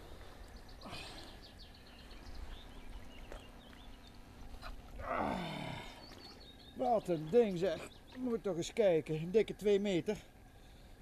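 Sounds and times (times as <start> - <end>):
man groaning with effort: 5.0 - 6.0.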